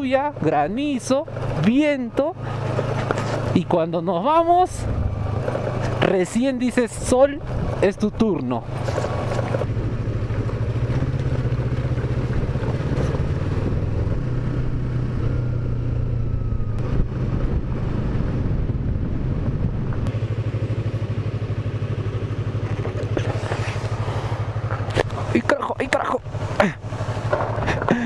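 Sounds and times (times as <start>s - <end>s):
motorcycle engine running: 0.0s - 28.0s
tyre and wind noise: 4.5s - 20.2s.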